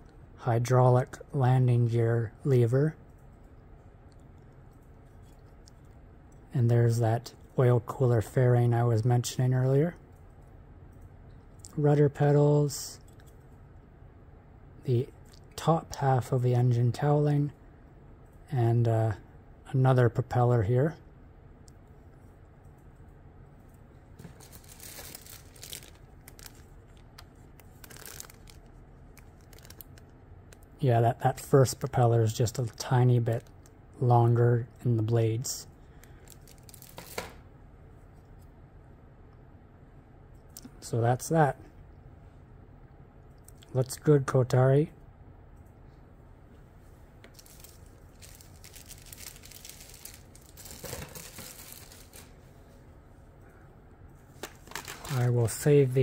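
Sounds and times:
plastic crinkling and rustling: 24.2 - 30.6, 36.0 - 37.4, 47.2 - 52.6, 54.3 - 55.6.

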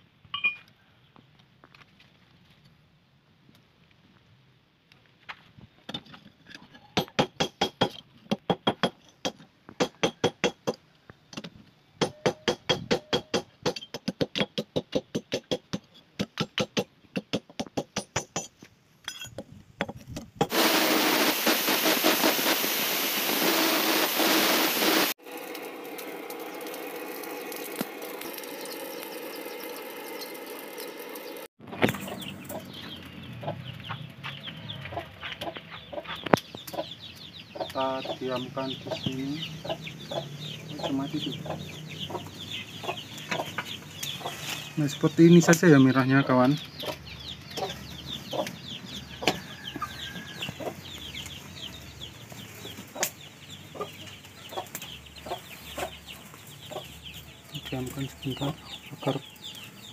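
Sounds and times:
forge fire rushing: 20.5 - 29.0.

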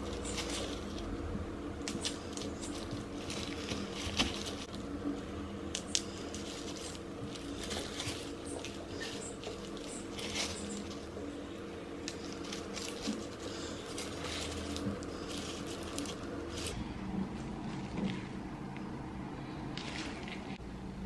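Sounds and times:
plastic glove crinkling: 0.0 - 16.8
steady low hum: 0.0 - 21.0.

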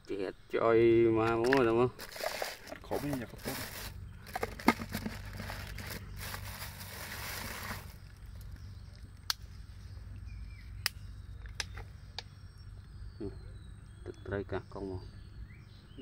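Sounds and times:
low steady rumble: 1.9 - 14.1
plastic bags rustling: 2.0 - 8.4.

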